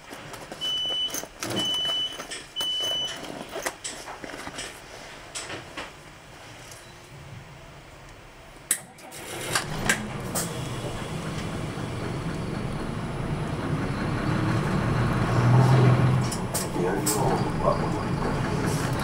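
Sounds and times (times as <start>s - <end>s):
bus diesel engine running: 7.7s - 19.0s.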